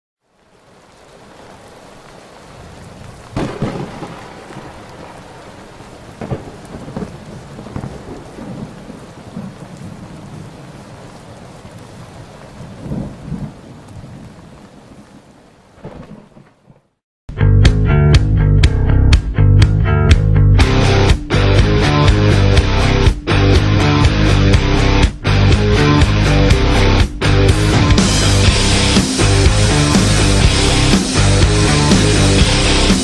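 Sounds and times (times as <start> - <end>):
steady rain: 0.2 - 16.7, 24.5 - 33.0
thunder rumbling: 0.6 - 16.9
loud thunderclap: 3.3 - 5.4, 6.1 - 10.8, 12.2 - 14.5, 15.8 - 16.8.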